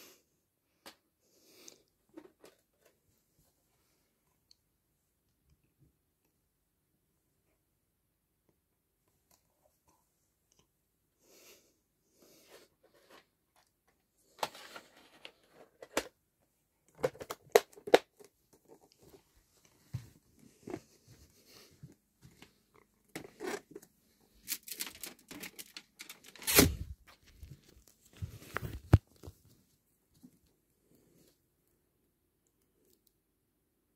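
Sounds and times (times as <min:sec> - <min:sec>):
videotape case handling noises: 0:16.9 - 0:19.2, 0:22.4 - 0:29.4.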